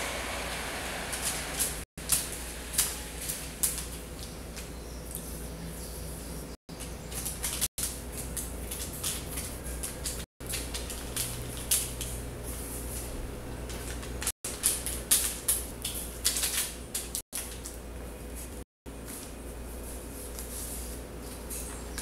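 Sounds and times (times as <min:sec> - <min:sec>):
paper rustling and crinkling: 0:01.1 - 0:04.8, 0:06.8 - 0:22.0.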